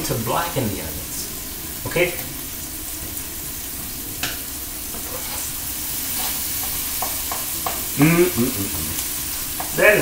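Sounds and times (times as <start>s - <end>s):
onions sizzling in oil: 0.0s - 10.0s
spatula tapping pan: 6.2s - 8.0s, 9.5s - 9.8s
spatula knocking against pan: 6.6s - 7.9s, 9.6s - 9.8s.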